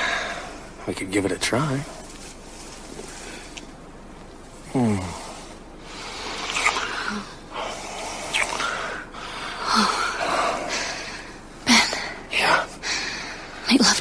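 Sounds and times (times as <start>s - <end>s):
low voiced mm: 4.6s - 8.8s
heavy breathing: 4.7s - 13.6s
kissing: 6.4s - 7.2s, 7.9s - 8.8s.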